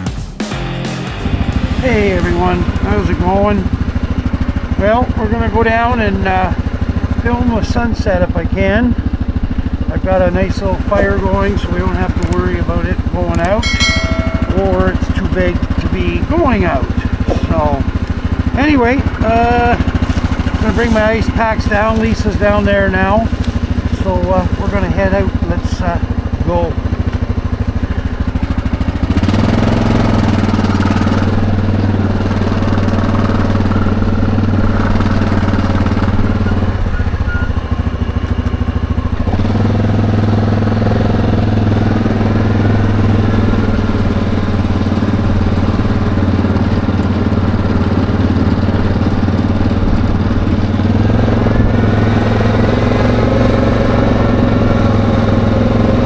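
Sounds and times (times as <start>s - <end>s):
quad bike engine running: 0.6s - 56.0s.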